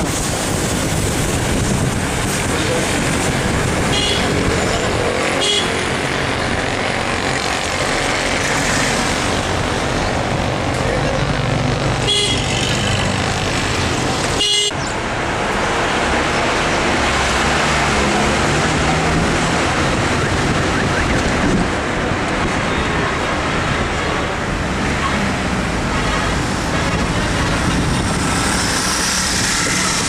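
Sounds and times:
street traffic: 0.0 - 30.0
vehicle horn toots: 3.9 - 4.3, 5.4 - 5.9, 12.0 - 13.0, 14.4 - 14.8.

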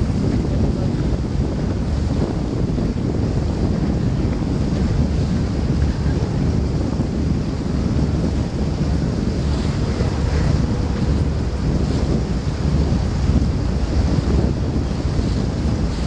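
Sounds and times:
water rushing past hull: 0.0 - 16.0
wind buffeting microphone: 0.0 - 16.0.

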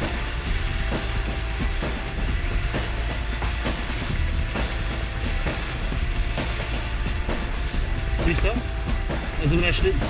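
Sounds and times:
small waves slapping hull: 0.0 - 8.3
water rushing along hulls: 0.0 - 10.0
wind buffeting microphone: 0.0 - 10.0.

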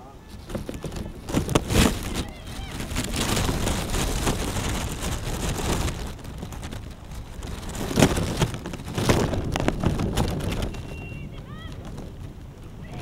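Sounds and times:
wind blowing across microphone: 0.0 - 13.0.

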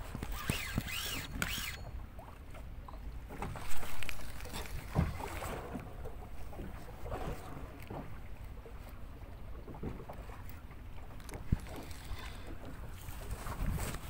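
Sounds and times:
water noise: 0.0 - 14.0
warbling squeak: 0.2 - 2.0
wind noise: 13.1 - 14.0.

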